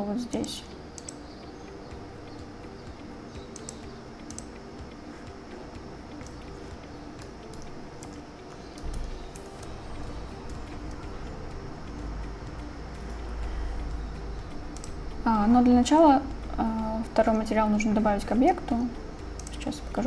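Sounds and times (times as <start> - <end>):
steady low hum: 0.0 - 20.0
keyboard and mouse clicks: 0.3 - 1.3, 3.4 - 4.6, 7.2 - 11.2, 14.6 - 15.0, 19.3 - 19.7.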